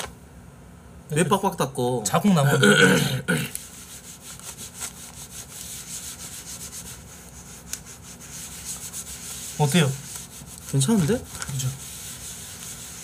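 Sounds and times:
tissue scrubbing hard surface: 3.5s - 13.0s.

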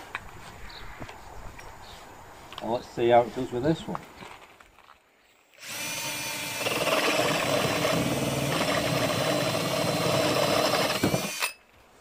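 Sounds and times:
drill hole saw cutting wood: 5.6s - 11.6s.

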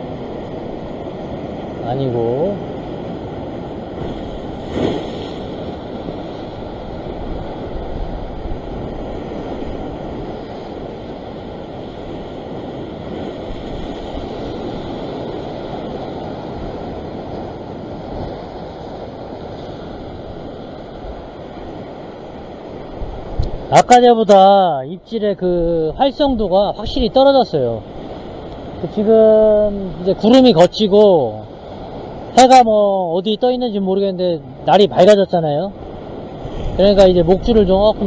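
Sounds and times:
surf washing against rocks: 0.0s - 38.0s
wind on microphone: 2.4s - 23.8s.

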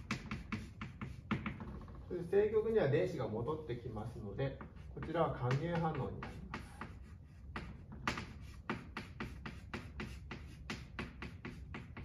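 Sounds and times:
chalk tapping on blackboard: 0.0s - 1.9s, 4.4s - 12.0s.

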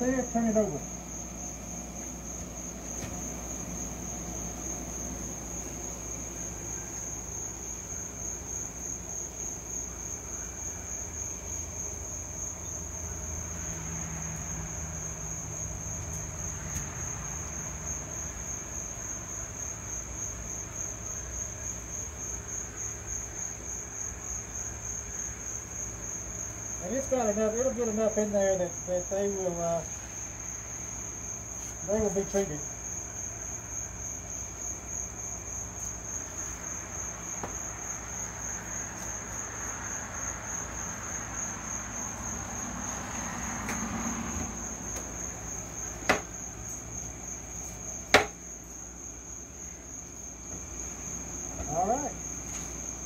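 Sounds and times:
crickets trilling: 0.0s - 53.0s.

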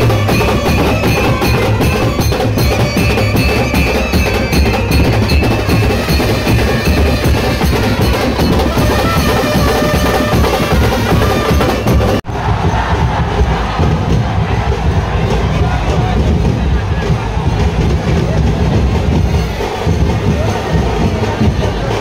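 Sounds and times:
brass band playing: 0.0s - 12.9s
drums beaten hard: 0.0s - 22.0s.

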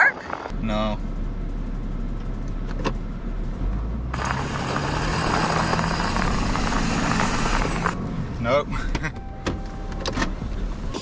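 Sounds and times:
truck engine under load: 3.4s - 8.3s.

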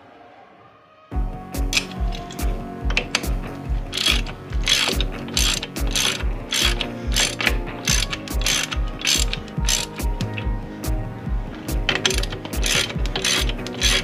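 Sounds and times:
background music with steady beat: 1.1s - 14.0s
ratchet wrench clicking: 1.7s - 10.5s, 11.7s - 14.0s.

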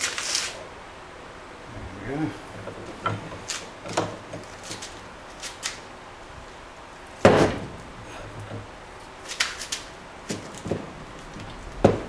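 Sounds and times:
loud metal clunk: 7.2s - 7.9s.

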